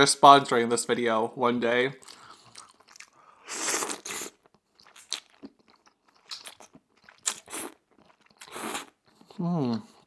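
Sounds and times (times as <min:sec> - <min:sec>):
wet chewing: 0:02.0 - 0:10.0
noodle slurps: 0:02.4 - 0:05.3.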